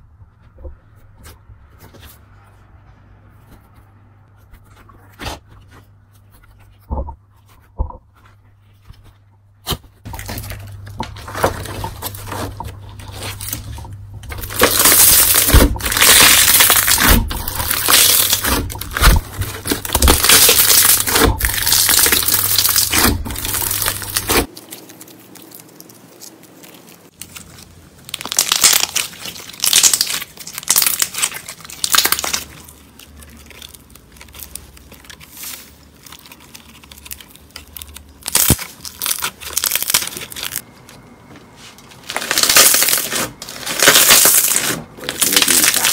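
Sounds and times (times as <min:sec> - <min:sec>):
slime crackling and popping: 0:09.7 - 0:40.6, 0:42.0 - 0:45.9.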